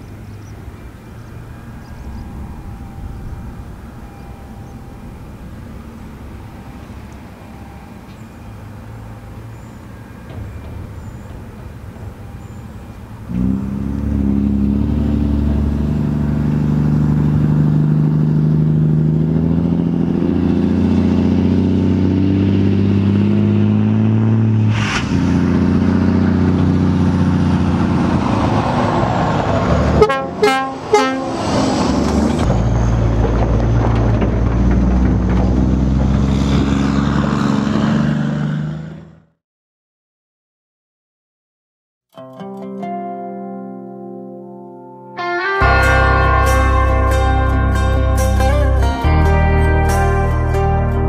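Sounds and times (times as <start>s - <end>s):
lorry diesel engine running: 0.0s - 39.3s, 45.6s - 51.0s
horn blasts: 29.9s - 31.9s, 45.2s - 51.0s.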